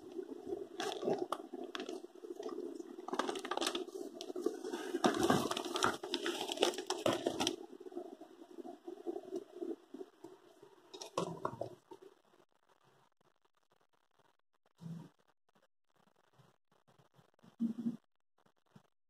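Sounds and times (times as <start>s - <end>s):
plastic bag crinkling and rustling: 0.1s - 9.7s.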